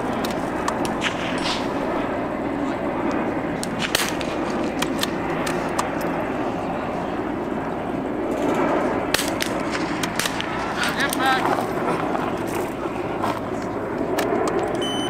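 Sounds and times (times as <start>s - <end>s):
steady background noise: 0.0s - 15.0s
rifle shots: 0.7s - 1.9s, 3.7s - 5.2s, 9.1s - 10.6s.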